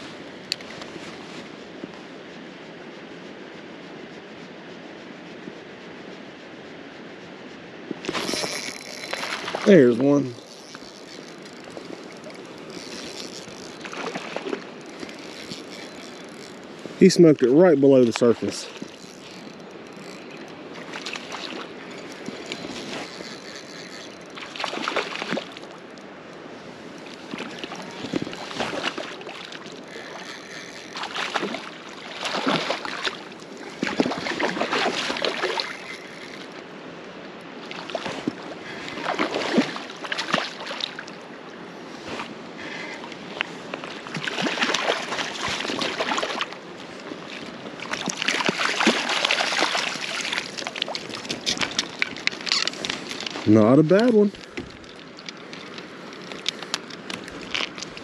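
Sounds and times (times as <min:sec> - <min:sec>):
creek water flowing: 0:07.8 - 0:58.0
fish splashing in water: 0:08.1 - 0:16.8, 0:18.2 - 0:25.8, 0:27.2 - 0:36.6, 0:37.6 - 0:41.2, 0:43.8 - 0:46.6, 0:47.2 - 0:53.4.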